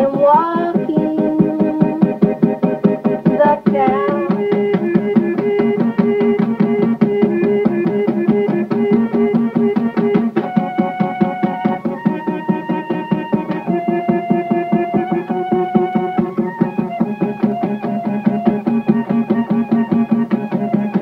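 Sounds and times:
background music with beat: 0:00.0 - 0:21.0.

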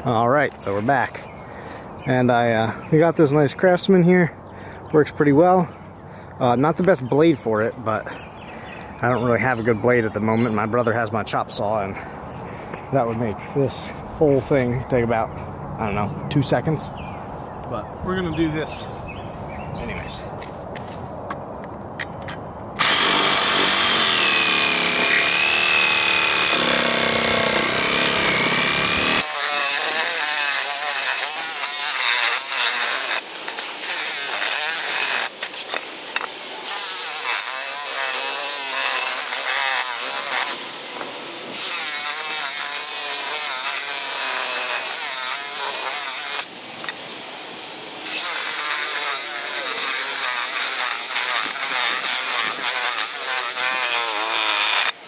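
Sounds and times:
reciprocating saw cutting wood: 0:22.8 - 0:46.5, 0:48.0 - 0:55.0.

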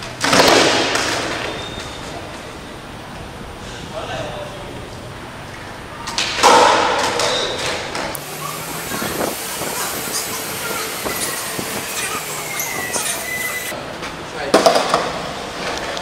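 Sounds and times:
skateboard clatter: 0:00.2 - 0:01.9
thin high squeal: 0:08.4 - 0:13.7.

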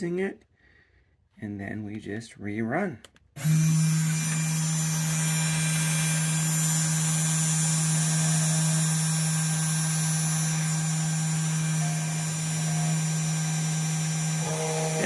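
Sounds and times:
router spindle motor hum: 0:03.4 - 0:15.0
faint high whine: 0:06.2 - 0:15.0.

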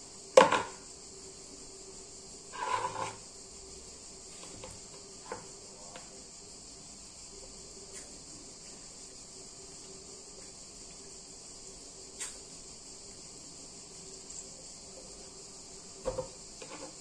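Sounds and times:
steady high-pitched hiss: 0:00.0 - 0:17.0
small knocks: 0:00.4 - 0:00.8, 0:16.0 - 0:17.0.

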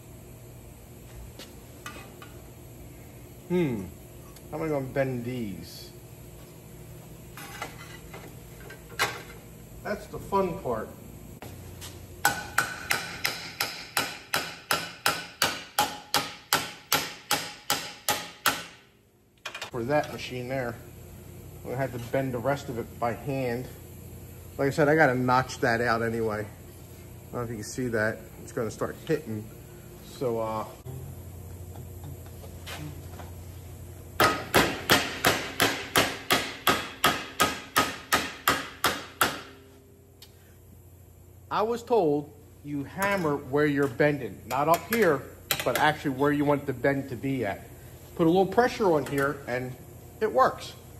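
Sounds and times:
hammer striking sheet steel: 0:12.2 - 0:18.8, 0:34.2 - 0:39.6.

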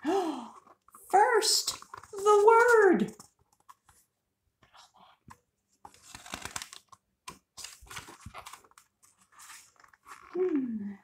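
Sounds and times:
book pages turning and rustling: 0:00.6 - 0:10.6.

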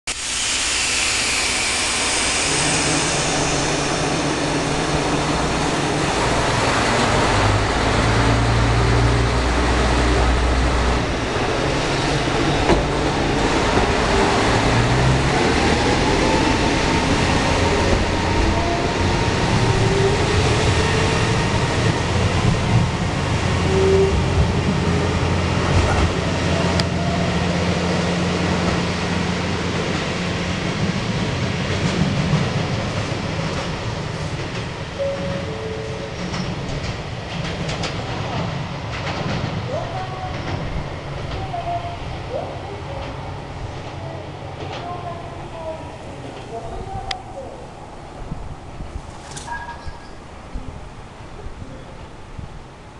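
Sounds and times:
train wheels clicking over rail joints: 0:36.1 - 0:41.4.

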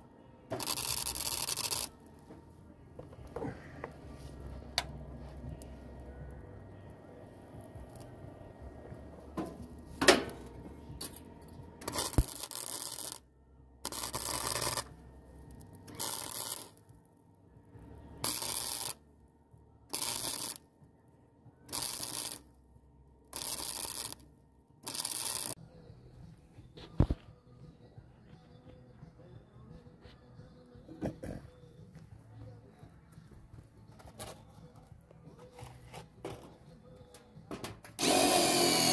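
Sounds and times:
welder crackling: 0:00.5 - 0:02.2, 0:04.7 - 0:10.6, 0:11.8 - 0:13.2, 0:13.8 - 0:14.9, 0:15.5 - 0:16.9, 0:18.2 - 0:19.0, 0:19.9 - 0:20.6, 0:21.7 - 0:22.5, 0:23.3 - 0:25.6, 0:38.0 - 0:38.9.

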